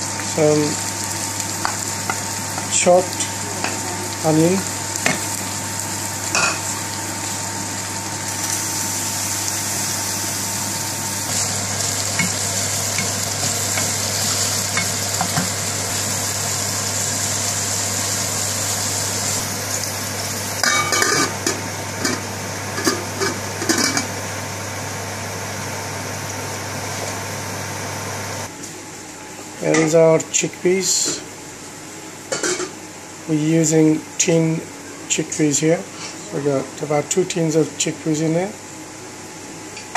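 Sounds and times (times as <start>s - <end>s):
onions sizzling in oil: 0.0s - 28.5s
pan and utensils clattering: 20.6s - 24.1s.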